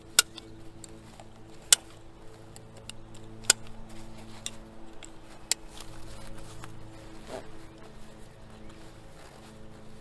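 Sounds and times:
strap ticks: 0.0 - 6.8
faint background music: 0.0 - 10.0.

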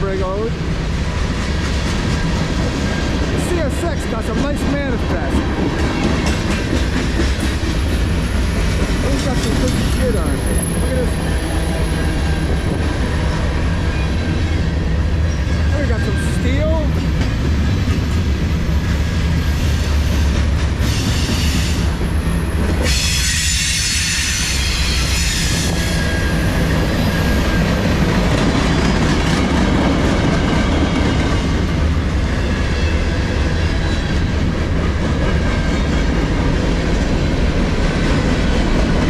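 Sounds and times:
freight train wheels rumbling on rails: 0.0 - 39.0
high wheel squeal: 20.9 - 28.0.

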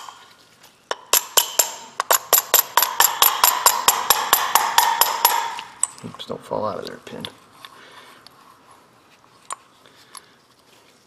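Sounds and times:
metal rod tapping metal plate: 0.9 - 6.0.

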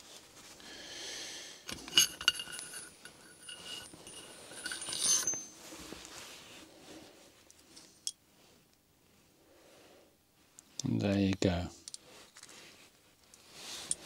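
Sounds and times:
steel parts clinking: 1.7 - 5.6
metallic ringing: 1.7 - 5.7.

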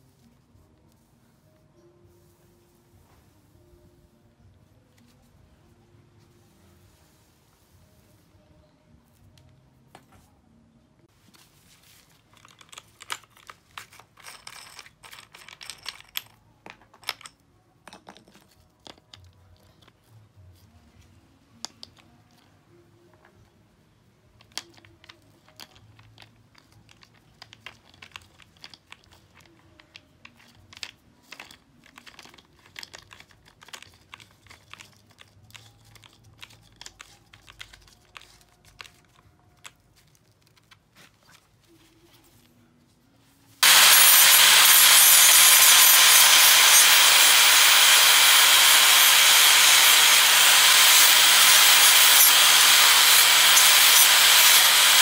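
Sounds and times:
gloves rustling: 11.1 - 14.8, 31.4 - 44.6.

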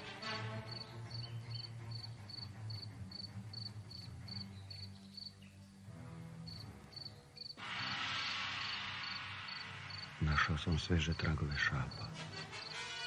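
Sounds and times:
cricket chirping: 0.7 - 5.3, 6.5 - 7.6, 8.2 - 10.2.

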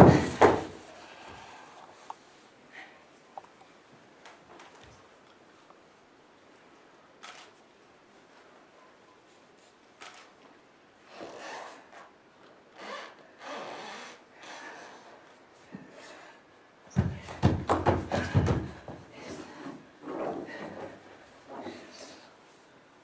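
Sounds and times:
loud wooden knocks and scrapes: 0.0 - 0.8, 17.0 - 19.0
body moving on wooden floor: 0.0 - 0.9, 16.9 - 21.9.

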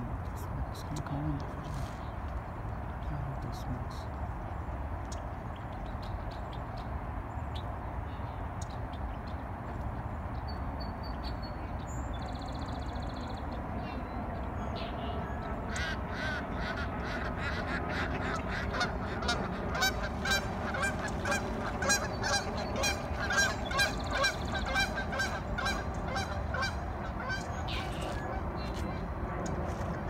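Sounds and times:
steady low rumble: 11.6 - 30.0
geese honking: 15.0 - 30.0.

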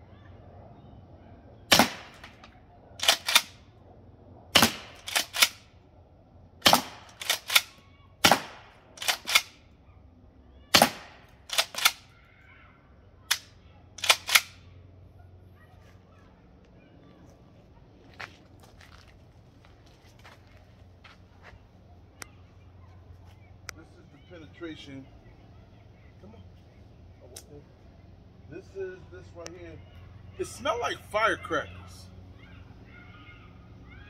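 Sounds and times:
shotgun shots: 1.7 - 2.4, 3.0 - 3.6, 4.5 - 5.6, 6.6 - 9.6, 10.7 - 12.1, 13.3 - 14.6.

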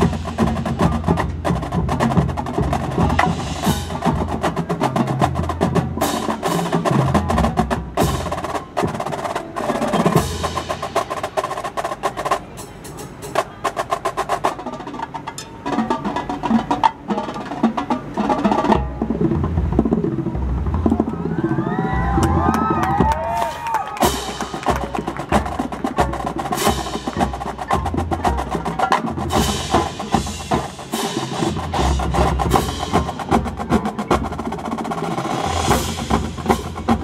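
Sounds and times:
mallet percussion: 0.0 - 11.3, 24.0 - 37.0
drumline playing rolls and hits: 0.0 - 37.0.

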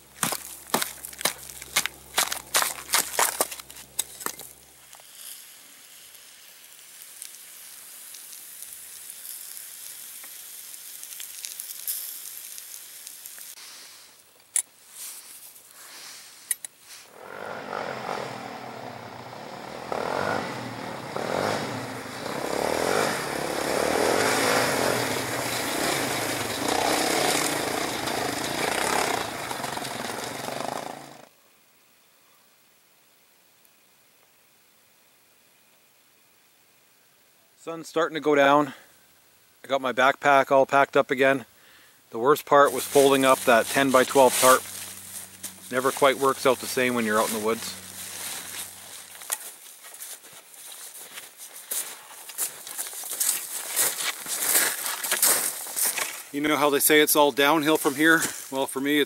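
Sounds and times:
off-road vehicle engine running: 0.0 - 4.8, 17.1 - 31.3, 42.7 - 49.3
faint hiss: 3.9 - 17.2, 31.3 - 59.0.

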